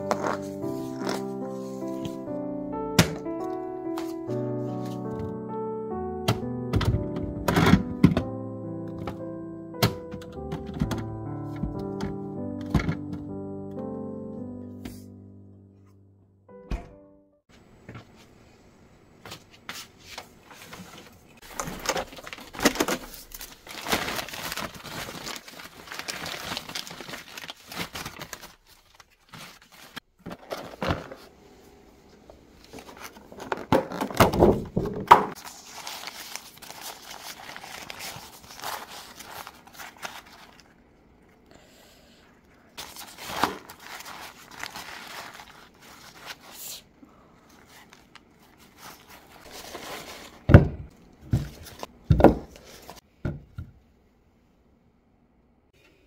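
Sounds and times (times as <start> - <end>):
packaging crinkling and rustling: 20.2 - 31.3, 32.6 - 40.8, 42.8 - 46.7, 47.5 - 50.7, 51.3 - 53.0.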